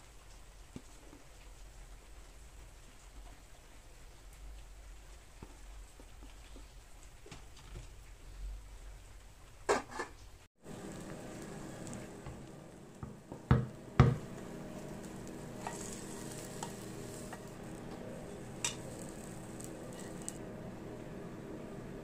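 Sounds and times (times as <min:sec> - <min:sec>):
light ticks of pan: 0:00.0 - 0:08.2
omelette sizzling in frying pan: 0:09.3 - 0:22.0
pan knocking: 0:13.0 - 0:14.4.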